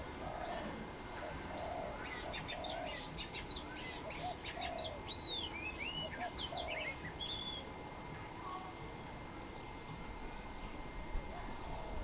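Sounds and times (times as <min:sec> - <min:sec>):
dove cooing: 0:00.0 - 0:07.4, 0:11.3 - 0:12.0
birds chirping and whistling: 0:01.5 - 0:07.7.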